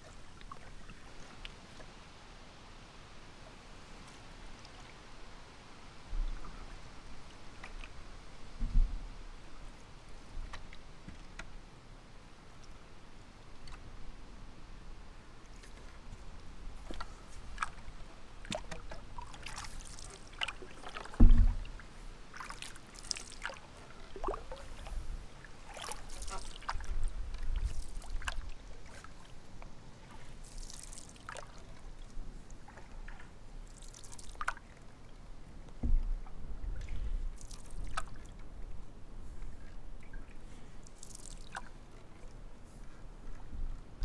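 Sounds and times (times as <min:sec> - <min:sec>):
paddle splashing water: 0:00.0 - 0:02.1, 0:15.4 - 0:44.0
low thumps: 0:21.2 - 0:21.7.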